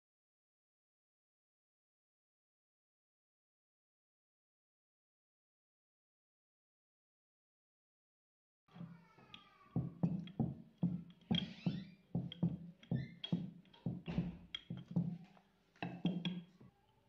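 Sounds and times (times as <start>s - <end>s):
background music with steady beat: 8.8s - 16.5s.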